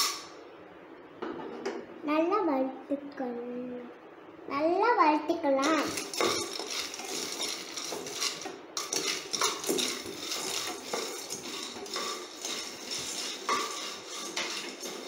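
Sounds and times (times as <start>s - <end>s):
nuts rattling in a pan: 5.6s - 15.0s
spatula scraping a pan: 5.6s - 15.0s.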